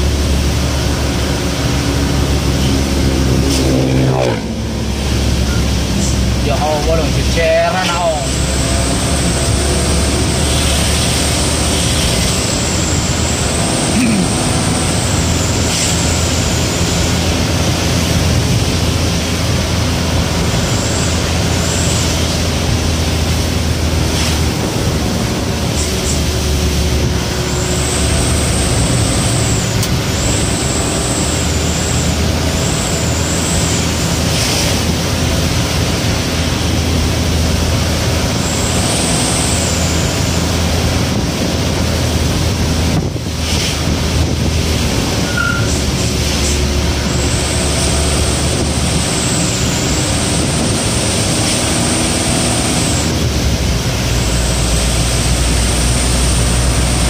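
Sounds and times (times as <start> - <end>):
bus engine drone: 0.0 - 57.0
tyres hissing on wet road: 0.0 - 57.0.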